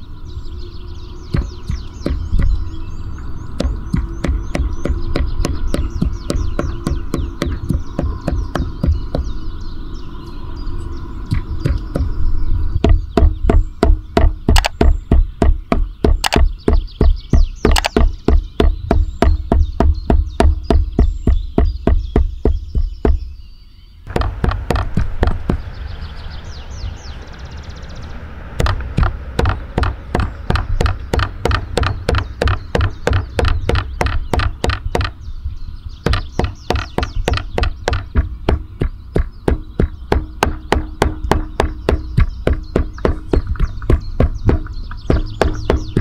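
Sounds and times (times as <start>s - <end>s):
cleaver chopping meat on wood: 1.3s - 2.6s, 3.6s - 9.4s, 11.3s - 12.2s, 12.8s - 23.3s, 24.1s - 25.7s, 28.6s - 35.2s, 36.1s - 46.0s.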